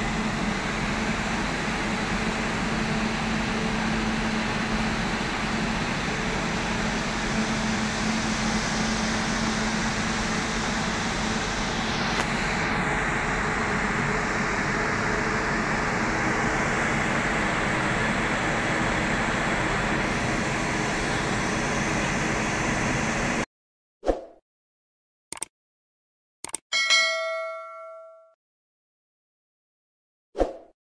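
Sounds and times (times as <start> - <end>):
blowers and cooling fans humming: 0.0 - 23.4
short chime: 26.7 - 28.4.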